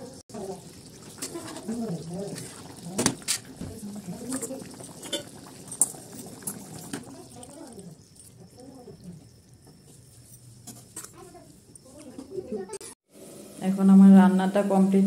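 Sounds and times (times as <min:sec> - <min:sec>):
curry simmering and bubbling: 0:00.1 - 0:13.4.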